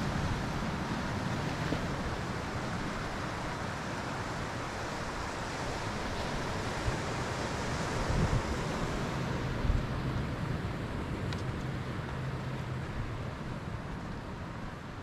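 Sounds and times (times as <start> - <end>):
wind buffeting microphone: 0.0 - 11.0
surf rushing over rocks: 0.0 - 15.0.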